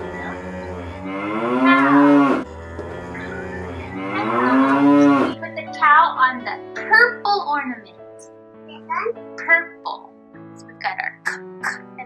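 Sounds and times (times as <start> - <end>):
cow mooing: 0.0 - 5.4
faint background music: 0.0 - 12.0.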